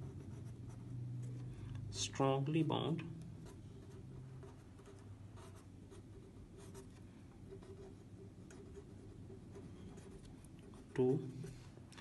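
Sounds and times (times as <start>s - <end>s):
marker pen scratching paper: 0.0s - 0.9s, 3.4s - 11.7s.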